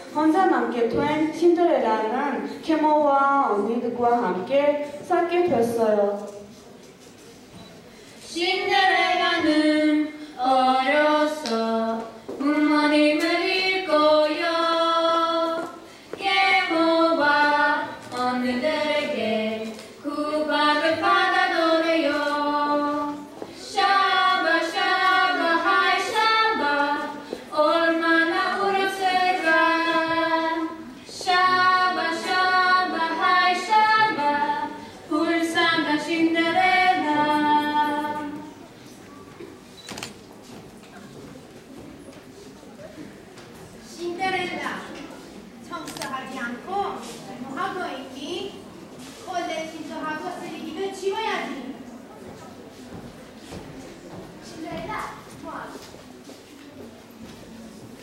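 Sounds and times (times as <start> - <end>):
woman singing unaccompanied: 8.3 - 38.5.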